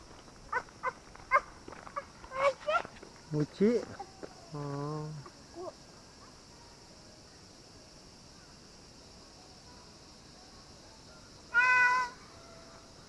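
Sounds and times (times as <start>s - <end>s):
faint high hiss: 2.4s - 13.0s
drawn-out animal call: 11.5s - 12.6s.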